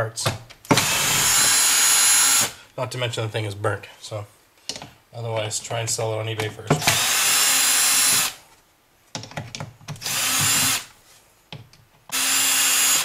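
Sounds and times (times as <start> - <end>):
cordless drill running: 0.8 - 2.6, 6.8 - 8.4, 10.0 - 10.9, 12.1 - 13.0.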